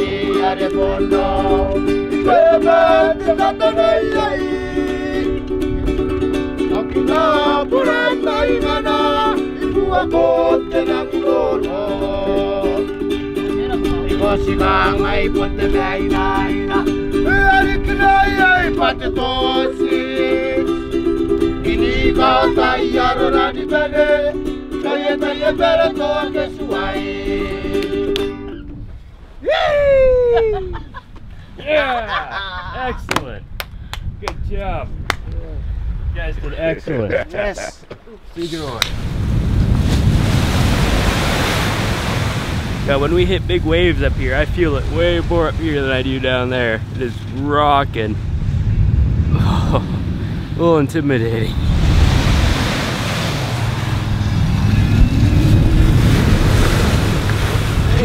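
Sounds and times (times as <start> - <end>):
person singing: 0.0 - 5.5, 6.6 - 28.4
ukulele strumming chords: 0.0 - 28.8.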